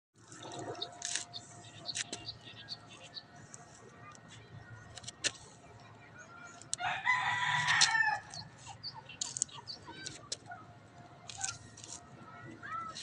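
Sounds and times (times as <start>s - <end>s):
rooster crowing: 6.8s - 8.3s.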